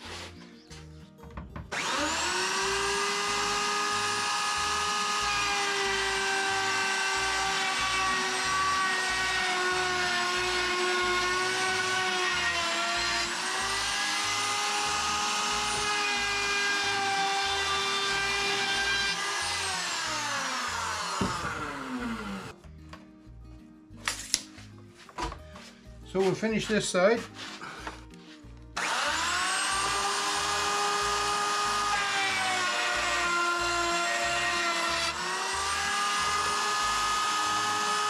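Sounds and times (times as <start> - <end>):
router whining: 1.7 - 22.6, 28.8 - 38.0.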